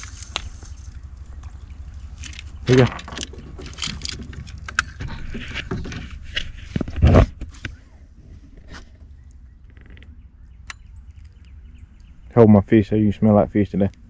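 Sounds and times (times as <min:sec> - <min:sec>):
scrapes and knocks in metal boat: 0:02.8 - 0:07.5.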